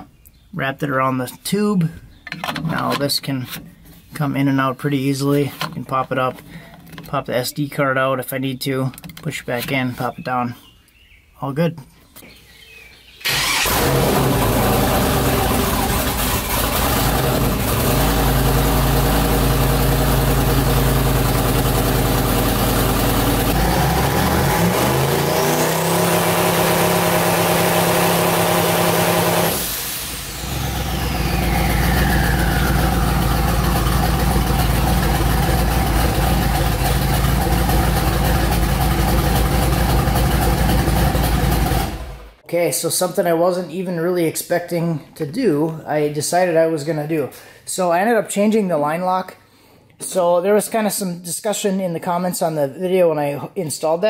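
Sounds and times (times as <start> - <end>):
car engine running loud: 13.3 - 42.4
high turbo whistle: 27.5 - 34.0.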